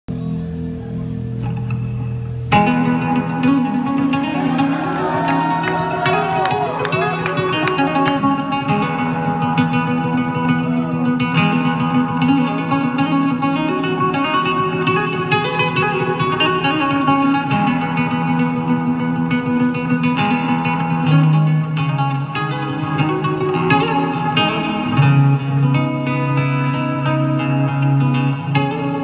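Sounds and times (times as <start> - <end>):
fingerpicked nylon-string guitar: 0.1 - 29.0.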